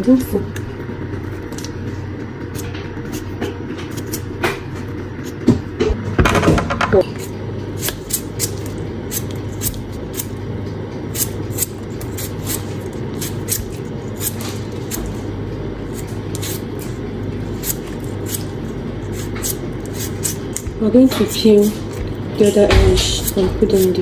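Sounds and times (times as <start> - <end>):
steady low hum: 0.0 - 24.0
knife scraping potato skin: 7.0 - 10.3, 11.1 - 15.3, 15.9 - 24.0.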